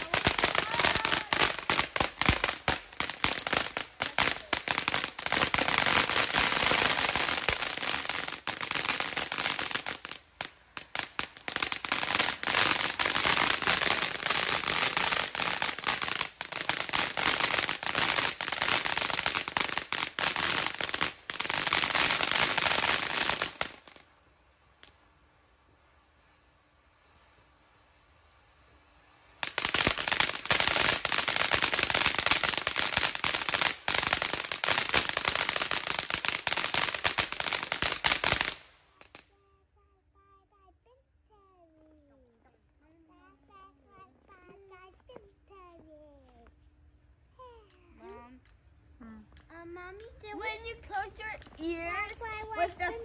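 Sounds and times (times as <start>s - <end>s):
fireworks crackling and popping: 0.0s - 53.0s.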